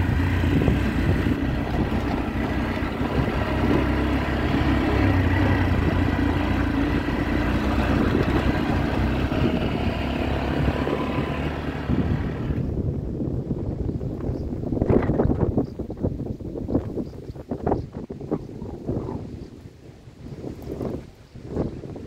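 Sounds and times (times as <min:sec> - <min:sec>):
car engine and road noise: 0:00.0 - 0:16.9.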